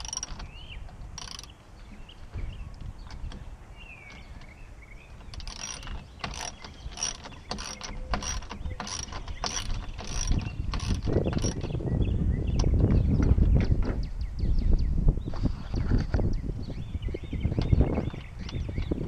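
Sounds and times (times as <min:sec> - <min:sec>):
metallic clicking: 0:00.0 - 0:02.0, 0:02.7 - 0:11.8.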